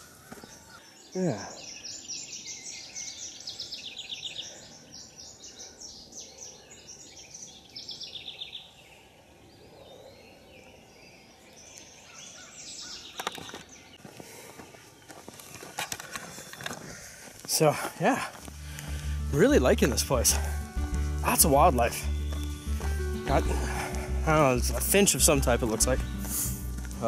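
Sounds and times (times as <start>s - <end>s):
songbirds singing: 0.0s - 27.0s.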